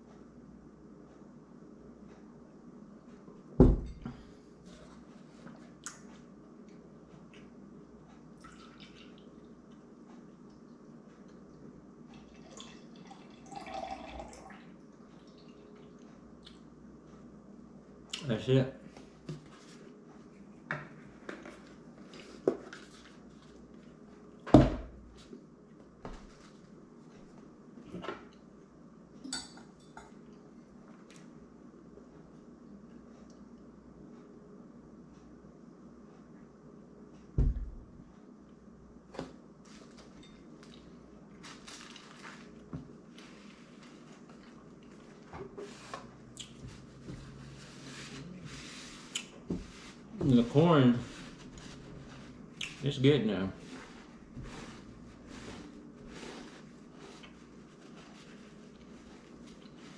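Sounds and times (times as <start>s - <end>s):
milk pouring into glass: 8.4s - 9.3s, 12.2s - 14.6s.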